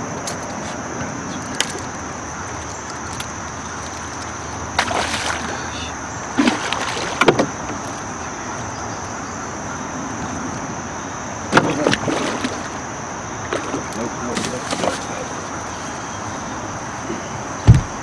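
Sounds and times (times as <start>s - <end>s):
steady water noise: 0.0s - 9.0s, 10.3s - 18.0s
fish splashing at water surface: 4.8s - 7.4s, 11.6s - 12.8s.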